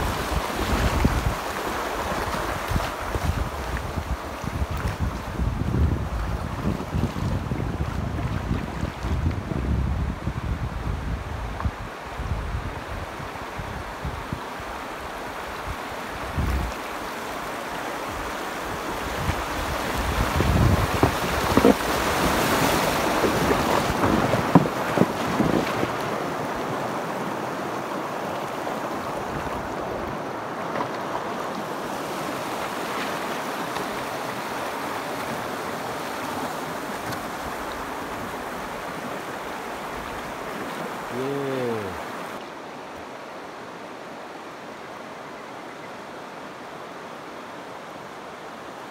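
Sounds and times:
wind buffeting microphone: 0:00.0 - 0:01.5, 0:02.2 - 0:14.4, 0:19.0 - 0:26.0
river water rushing over stones: 0:00.0 - 0:10.3, 0:11.0 - 0:48.9.

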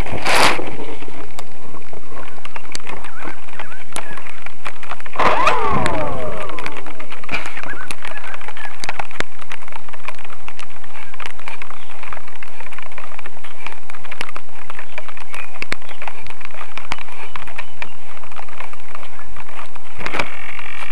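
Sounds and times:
falling whine: 0:05.2 - 0:07.7.

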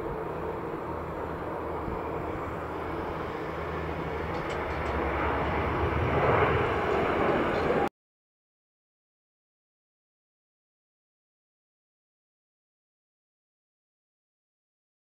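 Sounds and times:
jet engine noise: 0:00.0 - 0:07.9.

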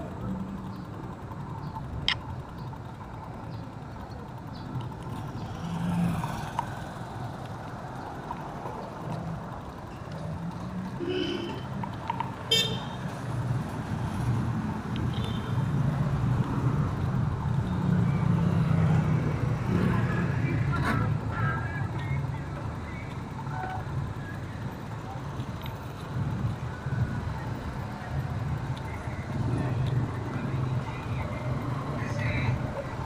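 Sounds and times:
vehicle engines running: 0:00.0 - 0:33.0.

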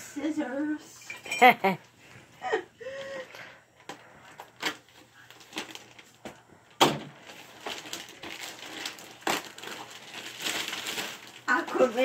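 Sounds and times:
plastic bag crinkling: 0:04.3 - 0:06.2, 0:07.1 - 0:12.0
scissors cutting plastic bag: 0:07.3 - 0:12.0.

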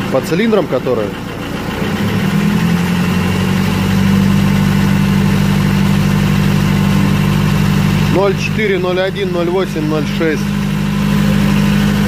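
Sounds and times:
diesel engine revving: 0:00.0 - 0:12.0.

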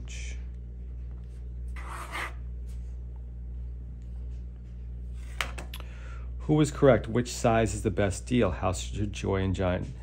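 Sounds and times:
steady low hum: 0:00.0 - 0:10.0
pen scratching on paper: 0:01.8 - 0:02.4.

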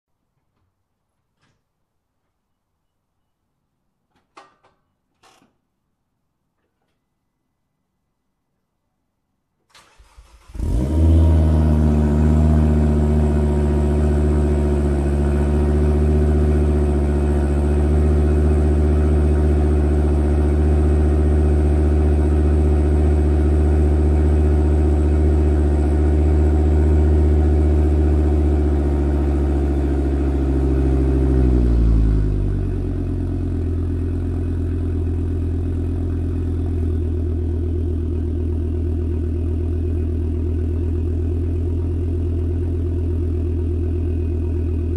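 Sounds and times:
car engine idling: 0:09.9 - 0:44.9.

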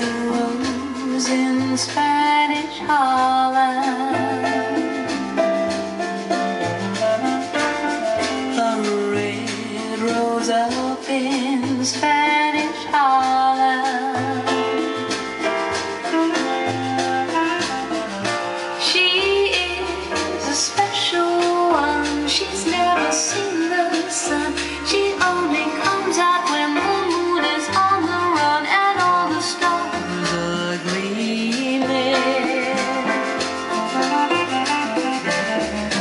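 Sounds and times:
bass line: 0:00.0 - 0:36.0
person singing: 0:18.9 - 0:33.4.

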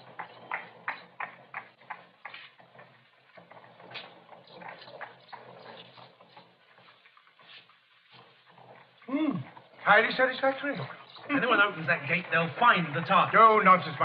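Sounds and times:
footsteps on street: 0:00.0 - 0:14.0.

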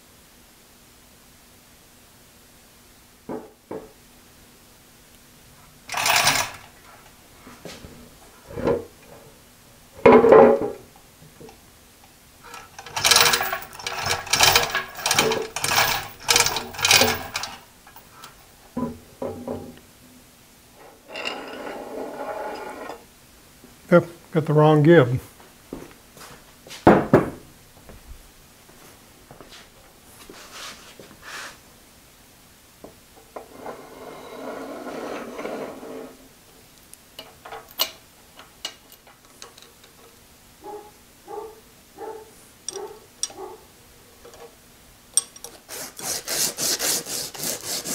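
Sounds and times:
hoist chain rattling: 0:05.9 - 0:06.8, 0:12.5 - 0:17.6, 0:42.7 - 0:43.4
rattling metal scrape: 0:05.9 - 0:06.8, 0:12.4 - 0:18.0, 0:20.9 - 0:23.0, 0:33.5 - 0:36.2
soft rustling: 0:27.9 - 0:31.6
light metal clicks: 0:42.7 - 0:43.4.

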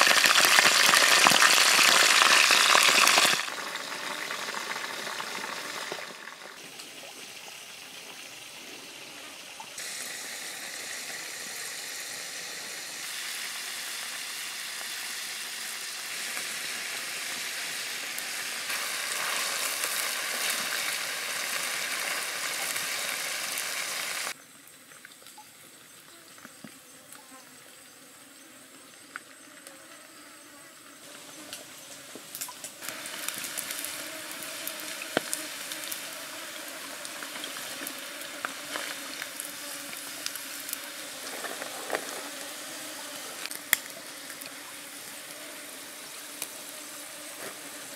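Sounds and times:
stream running over rocks: 0:00.0 - 0:08.0, 0:13.0 - 0:24.4, 0:32.2 - 0:46.7
food sizzling in hot oil: 0:00.0 - 0:24.4, 0:31.8 - 0:47.9.

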